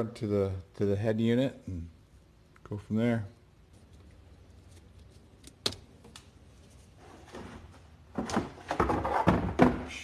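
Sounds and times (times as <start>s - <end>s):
rustling and knocking of handling: 6.0s - 9.9s.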